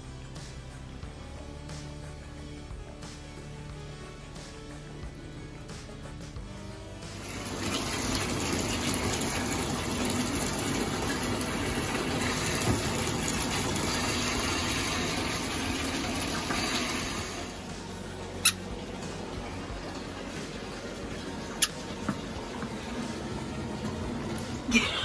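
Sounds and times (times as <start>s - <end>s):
water pouring into bathtub: 7.1s - 17.9s.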